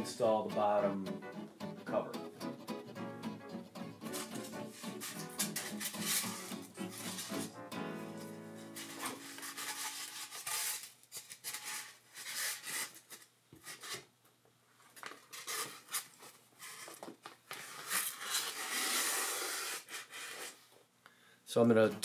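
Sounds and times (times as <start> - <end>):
styrofoam scraping on plastic: 4.1 - 7.5, 8.6 - 14.1, 15.2 - 17.0, 17.6 - 20.6.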